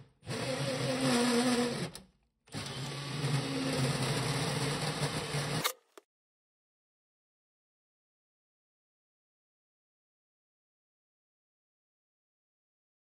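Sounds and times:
cordless drill drilling sheet metal: 0.0s - 5.9s.

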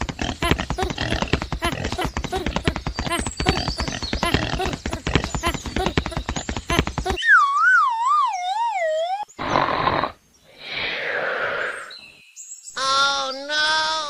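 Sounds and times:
wobbling whistle tone: 7.2s - 9.3s
noisy whooshes: 10.5s - 12.0s.

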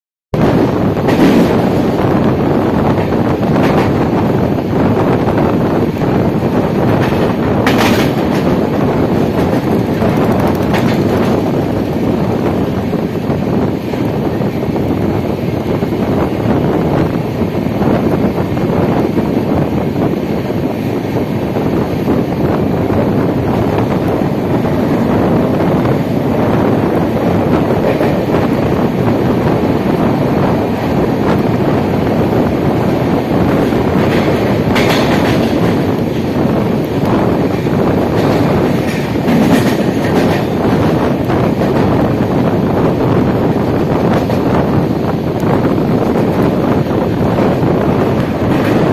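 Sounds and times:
train wheels rumbling on rail: 0.4s - 48.9s
wind buffeting microphone: 0.4s - 48.9s
wheels clattering over rail joints: 6.8s - 12.0s, 33.4s - 42.0s
wheel clicks over rail joints: 9.2s - 11.5s.

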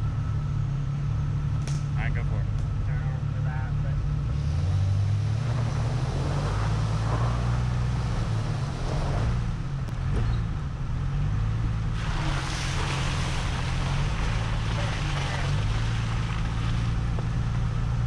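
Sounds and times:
engine droning: 0.0s - 18.0s.

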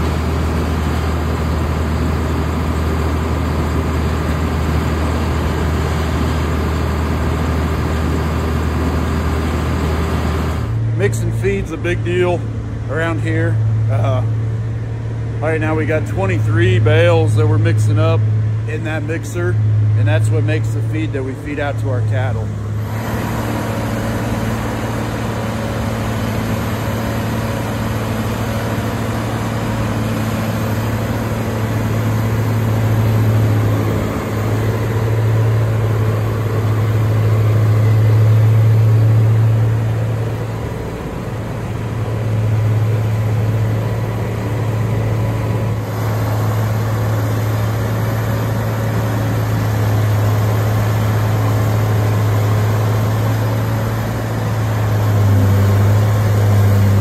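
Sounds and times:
tub grinder grinding hay: 22.2s - 57.0s.

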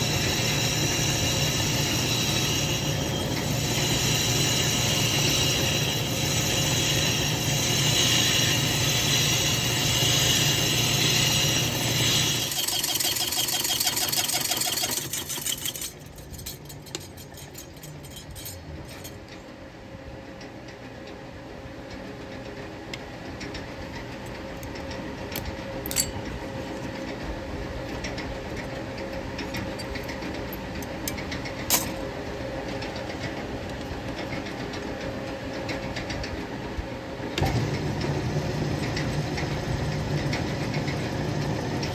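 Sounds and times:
metal lathe cutting: 0.0s - 18.5s.

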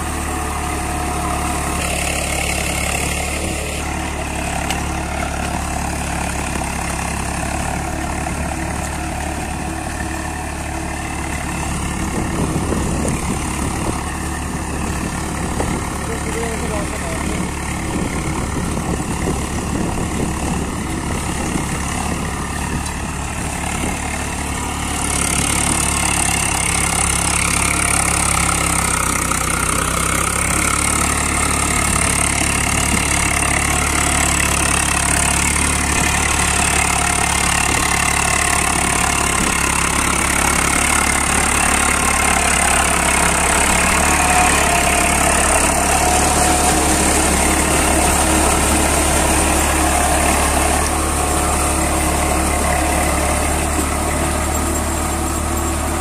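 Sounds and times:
tractor diesel engine under load: 0.0s - 56.0s.

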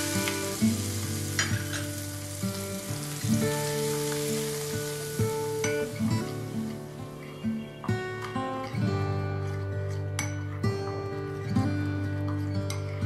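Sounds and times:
hot oil sizzling: 0.0s - 7.3s
plucked acoustic guitar music: 0.0s - 13.0s.

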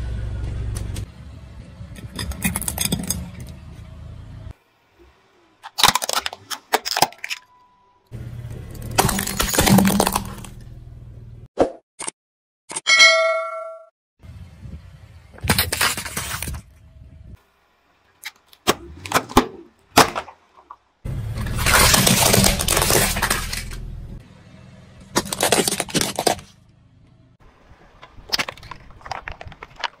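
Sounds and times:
car tyre crushing plastic objects: 2.0s - 3.6s, 5.6s - 7.6s, 8.4s - 10.8s, 15.4s - 16.7s, 18.2s - 24.0s, 25.0s - 26.6s, 27.7s - 30.0s.

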